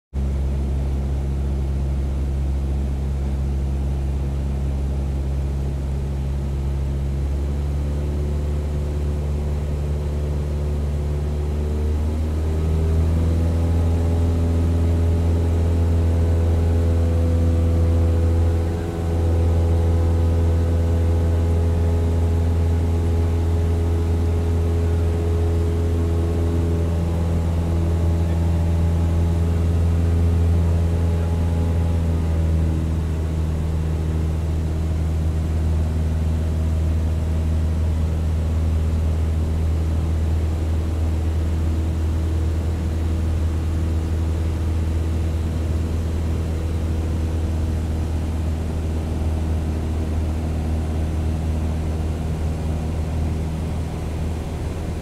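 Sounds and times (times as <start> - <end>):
aircraft engine drone: 0.2 - 55.0.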